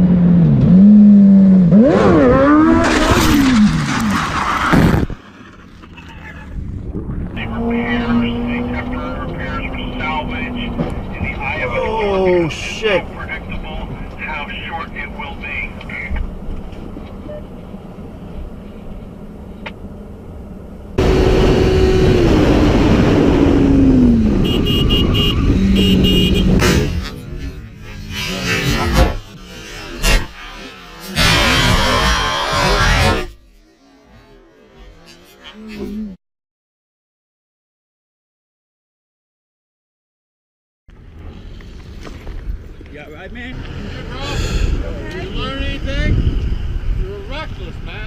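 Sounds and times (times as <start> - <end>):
car road noise: 0.0 - 36.2, 40.9 - 48.0
motorcycle engine: 18.4 - 36.2
rushing wind noise: 44.6 - 48.0.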